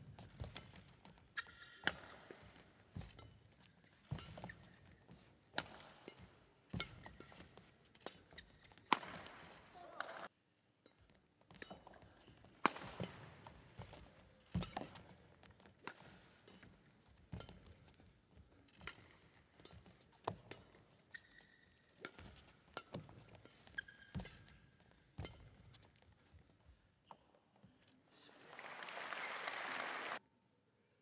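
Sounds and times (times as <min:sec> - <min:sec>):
shoe squeaks on court floor: 0:00.2 - 0:09.7, 0:18.9 - 0:26.4
racket hitting shuttlecock: 0:00.2 - 0:10.3, 0:11.5 - 0:26.0.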